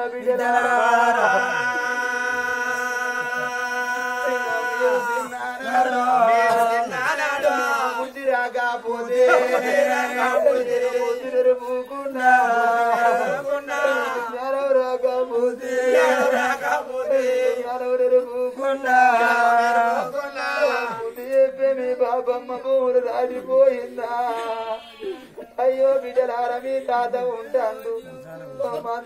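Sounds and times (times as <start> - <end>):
person singing wavering phrases: 0.0 - 17.7
steady drone: 1.1 - 5.3.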